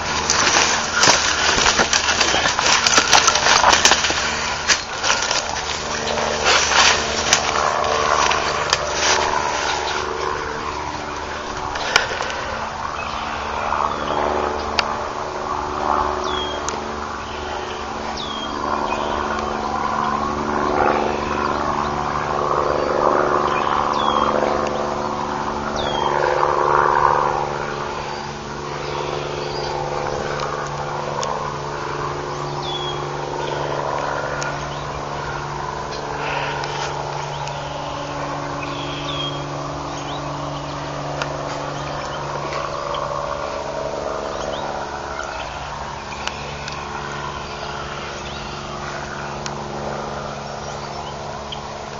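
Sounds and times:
distant helicopter droning: 0.0s - 51.9s
bird chirping: 16.2s - 19.4s, 35.9s - 43.6s.

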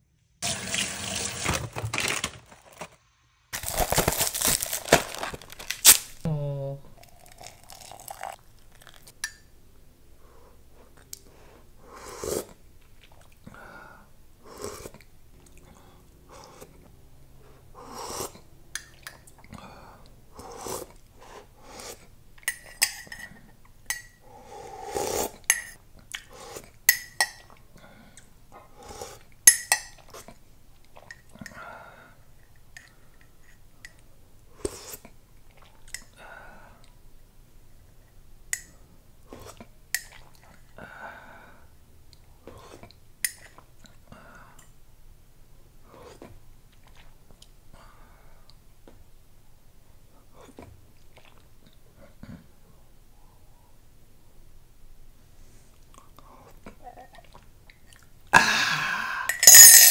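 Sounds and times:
person slurping tea: 7.0s - 9.2s, 11.8s - 12.6s, 14.5s - 15.0s, 17.8s - 18.5s, 20.3s - 22.1s, 24.4s - 25.5s
teaspoon clinking against mug: 59.3s - 59.9s.

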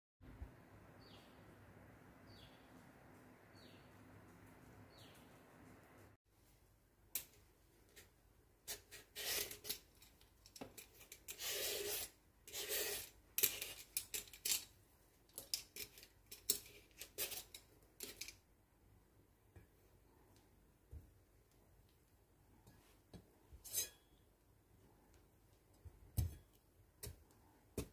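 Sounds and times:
peeler scraping papaya skin: 11.3s - 13.8s.

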